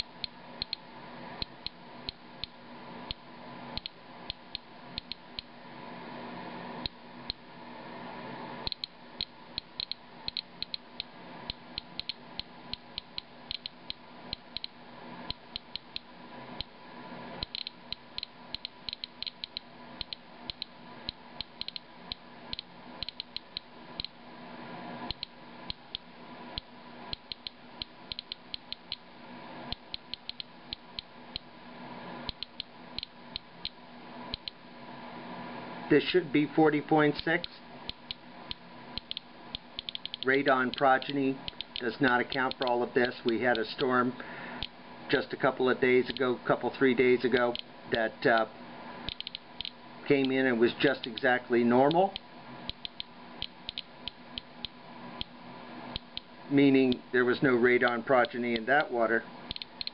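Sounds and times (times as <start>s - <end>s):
geiger counter clicking: 0.2s - 0.8s, 3.8s - 5.5s, 8.6s - 16.7s, 17.4s - 24.2s, 25.1s - 29.0s, 29.7s - 31.5s, 32.3s - 34.6s, 37.4s - 42.7s, 49.1s - 50.4s, 52.1s - 55.3s, 59.5s - 59.9s.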